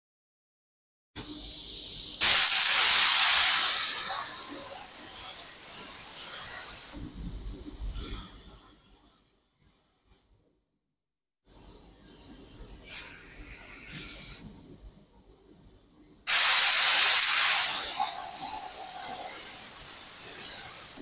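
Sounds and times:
gas hissing from torch: 1.2 - 8.3, 12.2 - 14.7, 16.3 - 21.0
plasma arc loud hiss: 1.2 - 8.7, 11.5 - 14.9, 16.3 - 21.0.

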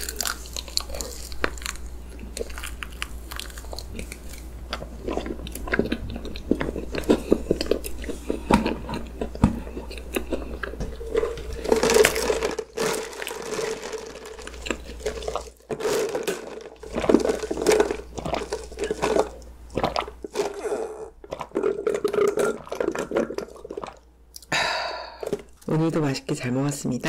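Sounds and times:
chewing cake: 0.0 - 24.5
swallowing: 16.8 - 25.6.

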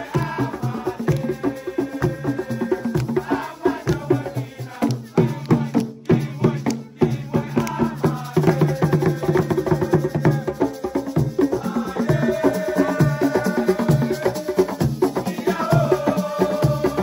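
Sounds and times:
fast percussion-driven music: 0.0 - 17.0.

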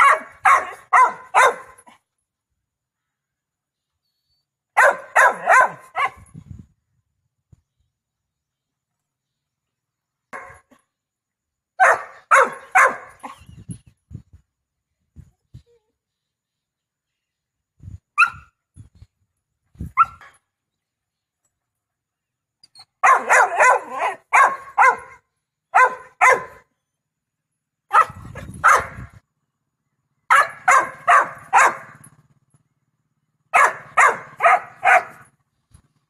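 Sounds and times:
puppy barking: 0.0 - 1.9, 4.8 - 6.2, 10.3 - 10.6, 11.8 - 13.4, 18.2 - 18.5, 23.0 - 26.6, 27.9 - 29.1, 30.3 - 32.0, 33.5 - 35.3
puppy yipping: 20.0 - 20.3.

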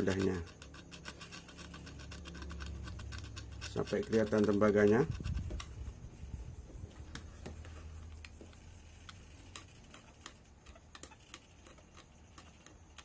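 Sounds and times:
cutter blade scraping: 0.0 - 6.0, 8.7 - 13.0.

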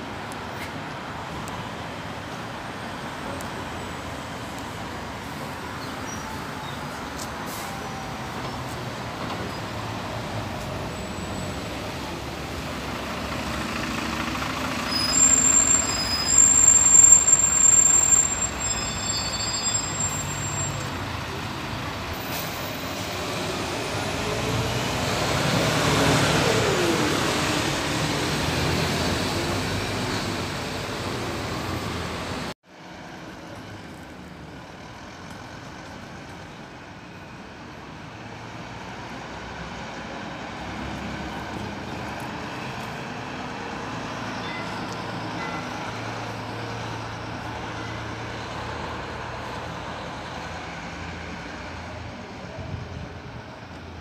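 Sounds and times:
bus engines in traffic: 0.0 - 54.0
tyres on road: 0.0 - 54.0
brake squeals: 5.4 - 12.1, 13.3 - 32.6, 40.3 - 52.6
passing vehicle engine: 22.8 - 32.6.

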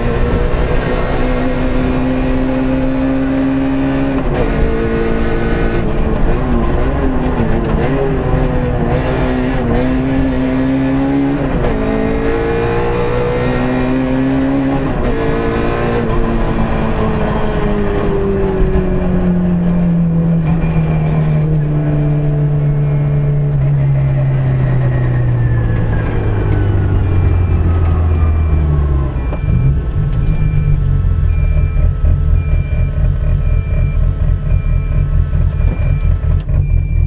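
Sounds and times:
rally car engine revving: 0.0 - 37.0.

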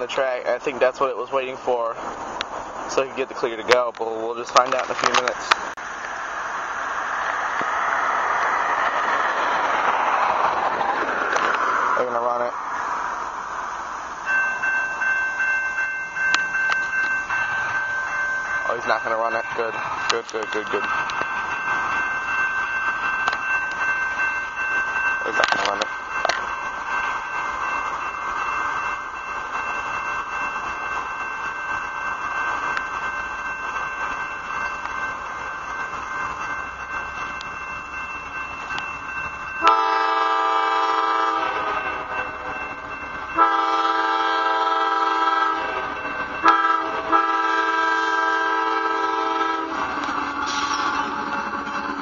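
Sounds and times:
freight train approaching: 0.0 - 52.0
train air horn blasts: 39.6 - 42.1, 43.4 - 45.8, 46.4 - 51.1.

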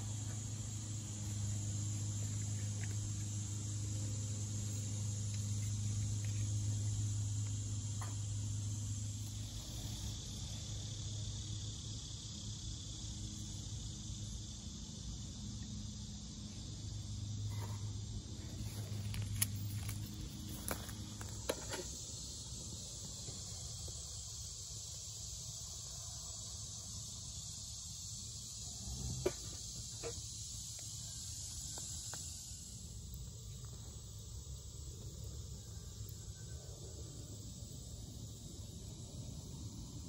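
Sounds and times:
insects chirring: 0.0 - 40.0
twigs crackling in fire: 18.6 - 21.4.

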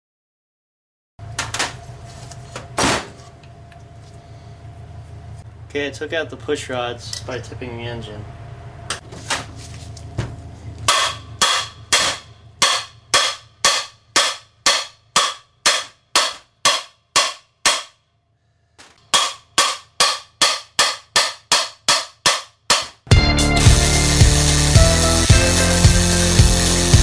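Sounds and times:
hammer striking metal oil pan: 10.9 - 18.0, 19.0 - 23.2.

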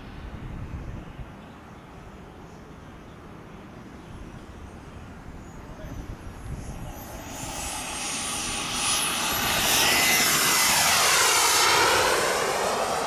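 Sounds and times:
model jet engine whine: 3.8 - 13.0.

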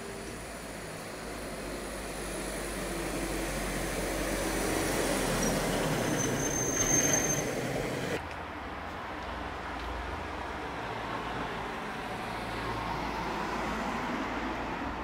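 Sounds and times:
high squeal: 4.7 - 7.8.

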